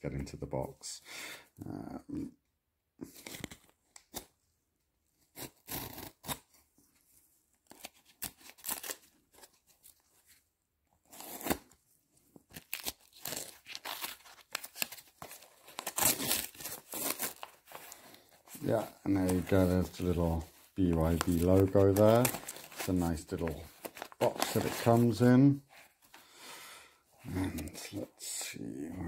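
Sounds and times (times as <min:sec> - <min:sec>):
cardboard box tearing and rustling: 0:12.6 - 0:17.9, 0:21.1 - 0:22.9.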